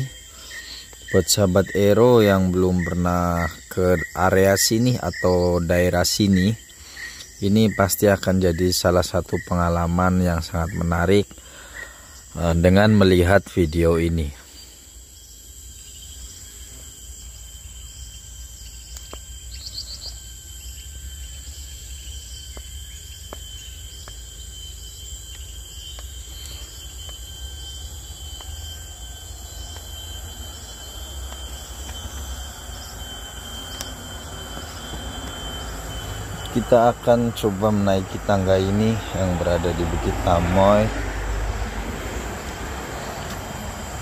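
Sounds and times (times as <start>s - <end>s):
bird chirp: 0.0s - 41.4s
insects droning: 0.0s - 44.0s.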